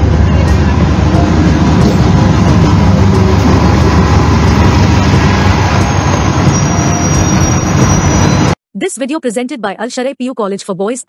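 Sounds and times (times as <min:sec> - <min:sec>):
diesel locomotive engine running: 0:00.0 - 0:08.6.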